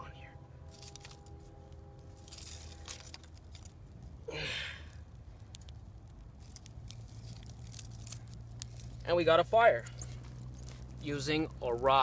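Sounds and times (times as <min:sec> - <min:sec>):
fire crackling: 0:00.5 - 0:12.0
faint ticks of sticks: 0:05.4 - 0:09.1.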